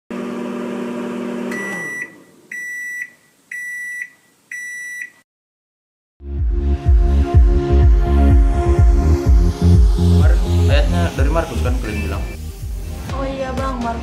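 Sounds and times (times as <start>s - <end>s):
music with a beat: 6.2s - 14.0s
high electronic beeps: 11.7s - 12.4s.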